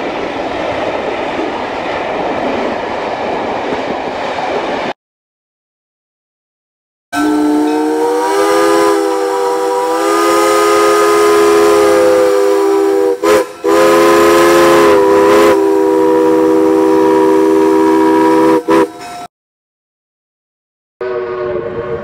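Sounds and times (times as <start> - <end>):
steam whistle chord: 7.2 - 19.2, 21.0 - 22.0.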